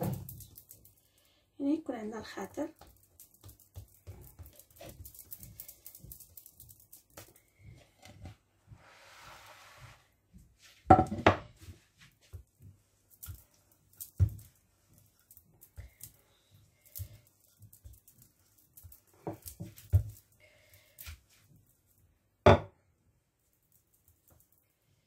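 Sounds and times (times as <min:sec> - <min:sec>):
hands patting dough: 0:02.4 - 0:08.9, 0:11.5 - 0:21.8
knocks on countertop: 0:10.9 - 0:11.5, 0:22.5 - 0:22.7.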